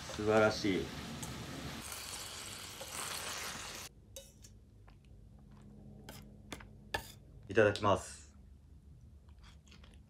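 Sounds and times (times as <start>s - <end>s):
stir-fry sizzling in pan: 0.0s - 4.3s.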